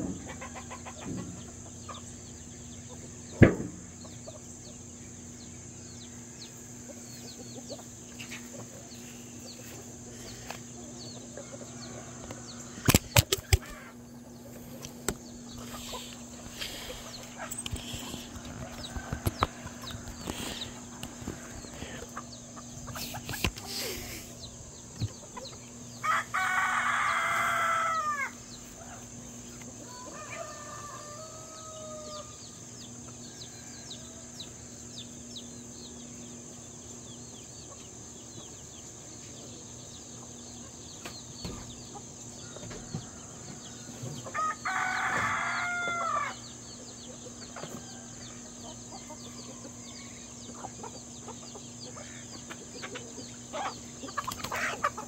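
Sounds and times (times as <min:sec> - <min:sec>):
steady high hiss: 0:00.0 - 0:42.5
chickens clucking: 0:00.0 - 0:55.0
rooster crowing: 0:26.0 - 0:29.0, 0:29.8 - 0:32.6, 0:42.4 - 0:46.5.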